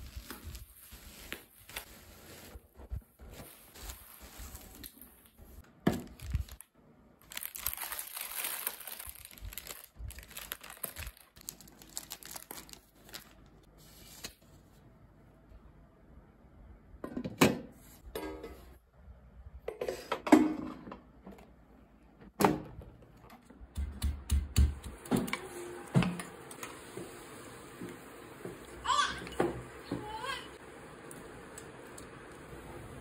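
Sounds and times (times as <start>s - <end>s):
bubble wrap crinkling: 0.0s - 14.5s.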